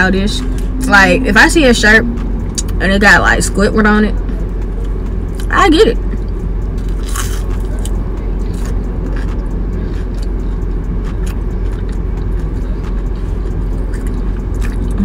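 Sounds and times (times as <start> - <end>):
low rumble in car cabin: 0.0 - 15.0
close-up chewing: 6.8 - 15.0.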